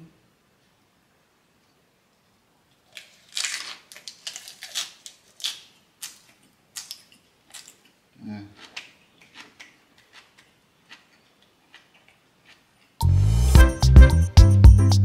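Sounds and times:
lettuce crunching while chewing: 0:02.8 - 0:13.0.

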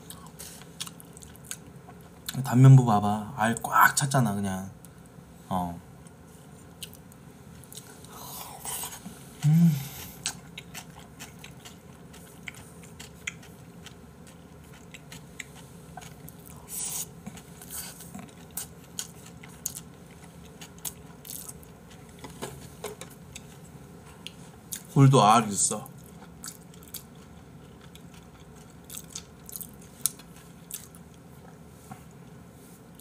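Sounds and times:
chewing with wet mouth noises: 0:00.0 - 0:02.4, 0:09.9 - 0:22.2, 0:23.3 - 0:25.0, 0:25.9 - 0:32.2.

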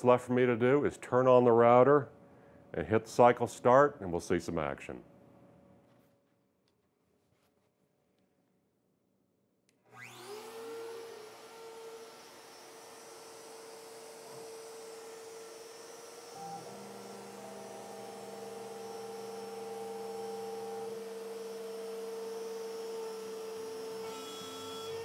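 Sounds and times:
router spindle humming: 0:09.9 - 0:25.0.

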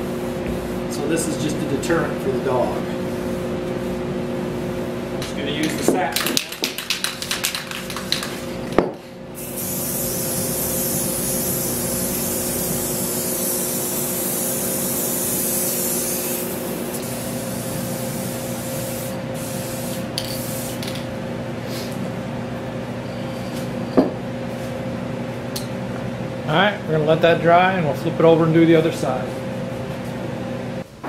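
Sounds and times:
aerosol can spraying: 0:09.4 - 0:21.0.

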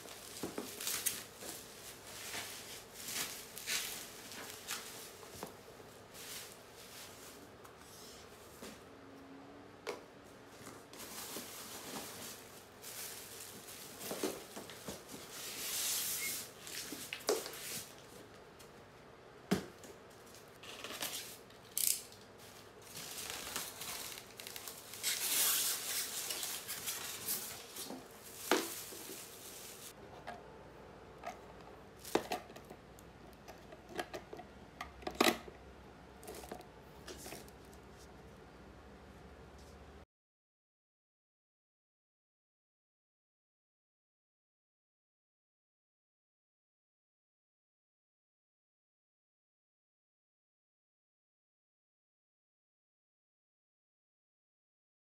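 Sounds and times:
cardboard and plastic rustling: 0:00.0 - 0:07.4, 0:10.6 - 0:18.2, 0:22.4 - 0:30.0, 0:31.3 - 0:34.4, 0:36.2 - 0:38.1.

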